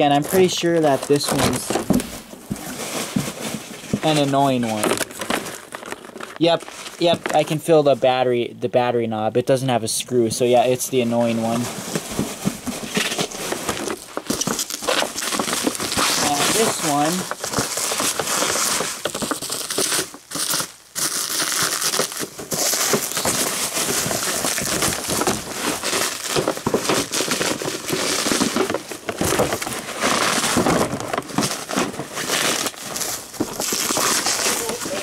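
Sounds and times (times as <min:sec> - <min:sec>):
plastic wrap crinkling: 0:00.0 - 0:08.2, 0:10.5 - 0:35.0.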